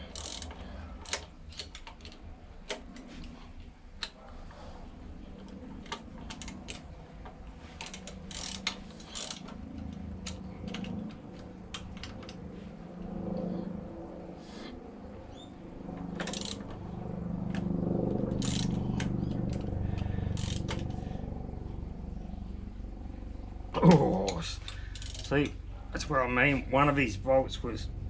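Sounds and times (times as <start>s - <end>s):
ratchet wrench clicking: 0.0s - 3.1s, 5.4s - 6.9s, 7.8s - 11.0s, 16.2s - 16.7s, 18.3s - 21.0s, 24.3s - 25.4s.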